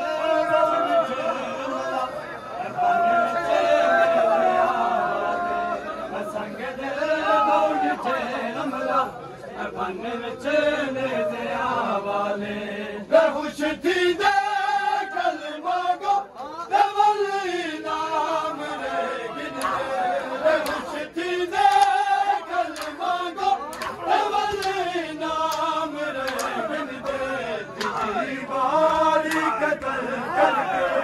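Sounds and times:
men chanting together: 0.0 - 31.0
chest-beating slaps: 20.6 - 20.9, 21.7 - 22.0, 22.7 - 23.0, 23.7 - 27.2, 27.8 - 28.2, 28.9 - 29.6.

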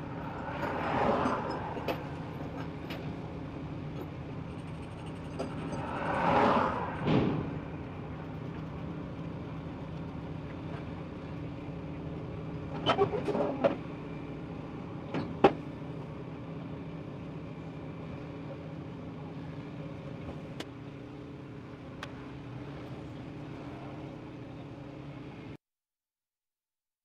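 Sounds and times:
heavy machinery engine running: 0.0 - 16.2.

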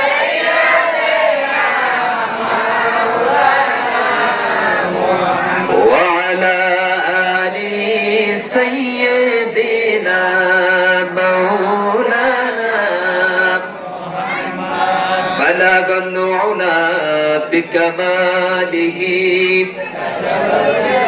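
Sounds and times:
man singing into a microphone: 5.5 - 13.8, 15.2 - 19.9.

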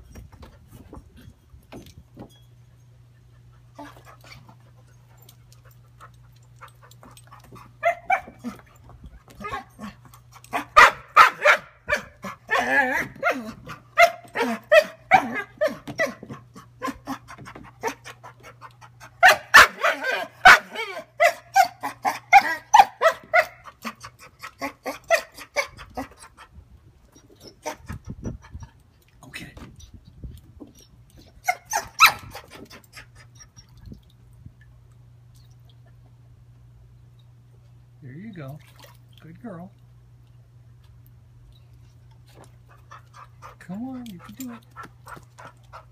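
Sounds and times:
dog barking and yipping: 7.5 - 8.6, 9.4 - 18.1, 19.0 - 26.2, 31.4 - 33.3.

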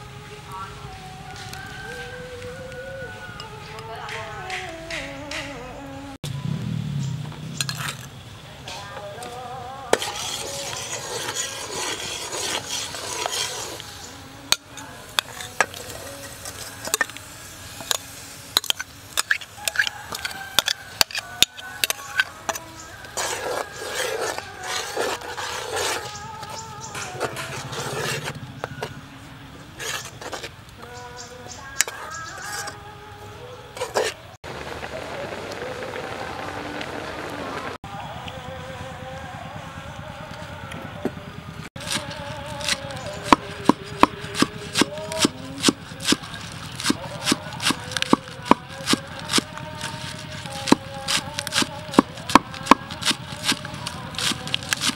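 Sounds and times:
spoon mashing wet coconut: 18.6 - 28.9
knife chopping on wooden board: 42.6 - 49.4, 50.1 - 53.6.

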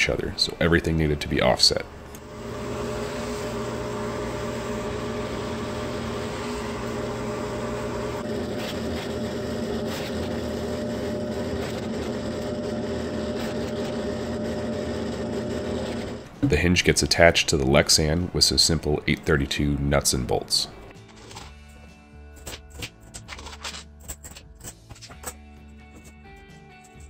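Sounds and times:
drill press running: 2.0 - 16.6.

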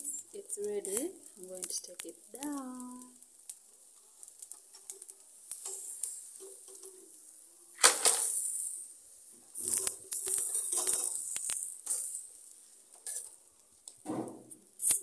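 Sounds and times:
noisy rustle: 4.2 - 12.9.

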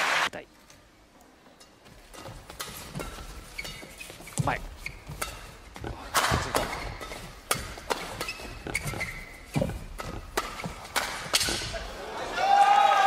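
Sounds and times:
court shoes squeaking: 1.5 - 12.0
rackets smacking shuttlecock: 2.1 - 11.9.

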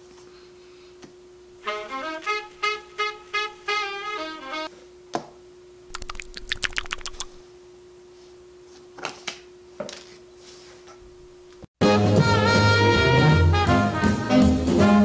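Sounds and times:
playing cards snapping: 5.9 - 7.4.

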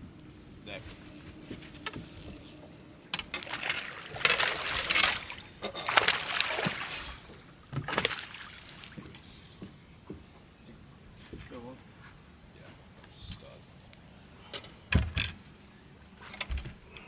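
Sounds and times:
water splashing against boat hull: 3.2 - 8.9.

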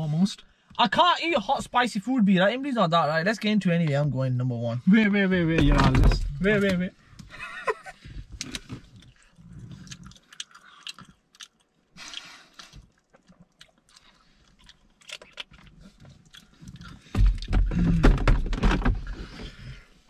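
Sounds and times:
wet chewing and smacking: 8.2 - 17.6.

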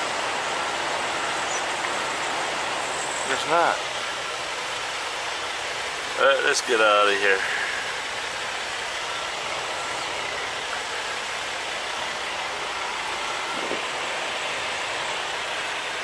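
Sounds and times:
steady hissing in truck cab: 0.0 - 16.0.

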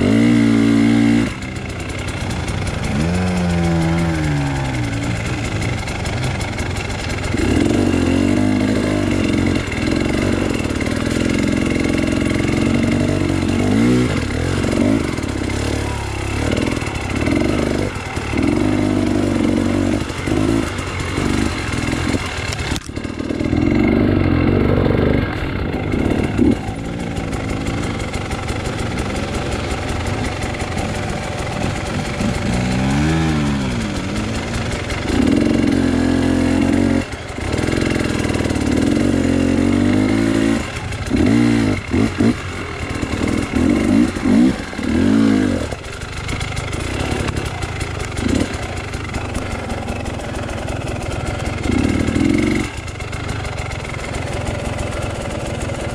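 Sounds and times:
dirt bike engine revving: 0.0 - 55.9.

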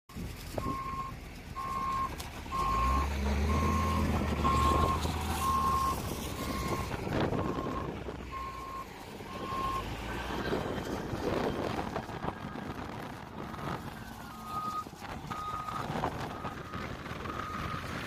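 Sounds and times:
diesel engine running: 0.1 - 18.0
reversing alarm beeping: 0.6 - 9.8, 14.3 - 17.9.

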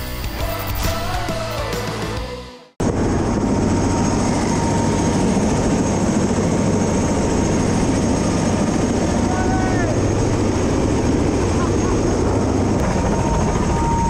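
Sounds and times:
helicopter engine and rotor: 2.8 - 14.0.

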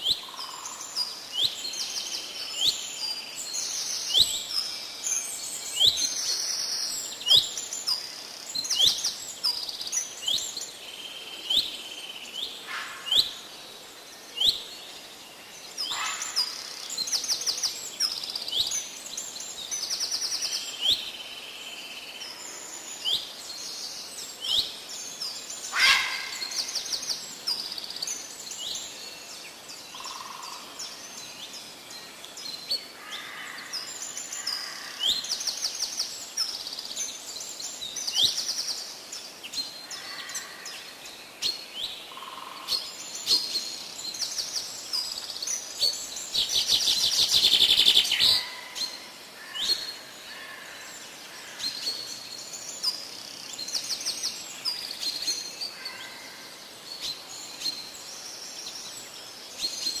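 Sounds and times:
birds chirping: 14.3 - 60.0.

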